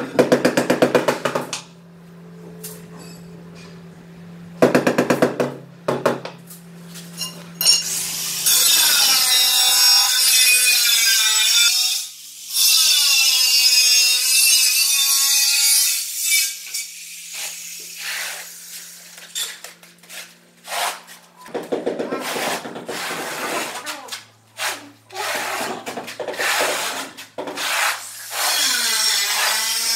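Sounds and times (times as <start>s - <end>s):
trowel scraping concrete floor: 17.3s - 29.9s.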